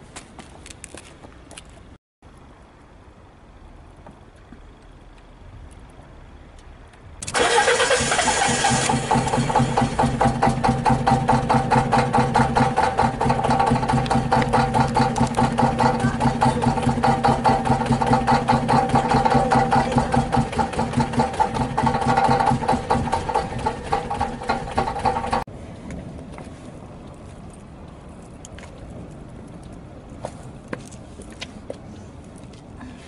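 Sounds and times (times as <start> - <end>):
starter motor cranking engine: 7.2 - 25.5.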